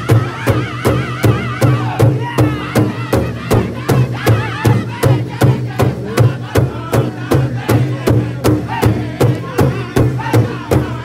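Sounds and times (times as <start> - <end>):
large drum steady beat: 0.0 - 11.0
men singing in unison: 0.0 - 11.0.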